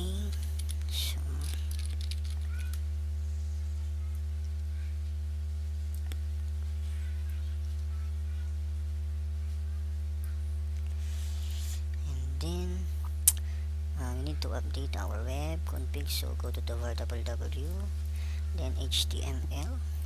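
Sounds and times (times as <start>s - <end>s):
electrical mains hum: 0.0s - 20.0s.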